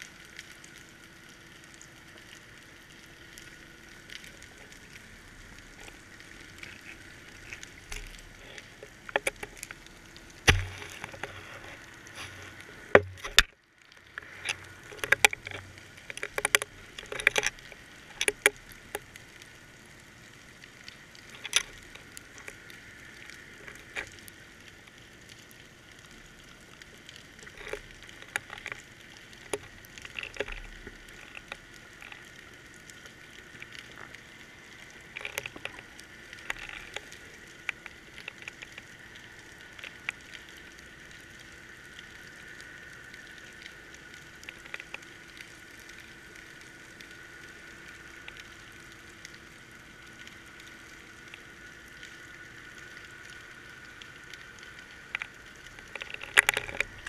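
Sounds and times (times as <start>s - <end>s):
faint steady hum: 0.0s - 57.0s
camera housing knocking underwater: 10.5s - 10.8s, 13.0s - 13.4s.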